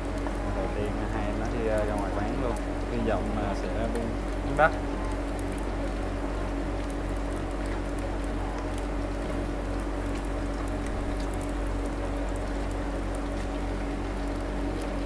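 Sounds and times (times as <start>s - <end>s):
food deep-frying in oil: 0.0s - 15.0s
low hum: 0.0s - 15.0s.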